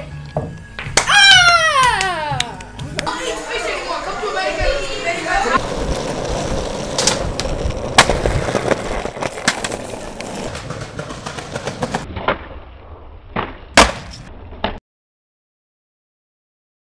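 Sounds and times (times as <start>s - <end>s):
skateboard wheels rolling on asphalt: 3.3s - 12.1s
skateboard popping and landing: 5.6s - 12.6s, 13.3s - 14.8s.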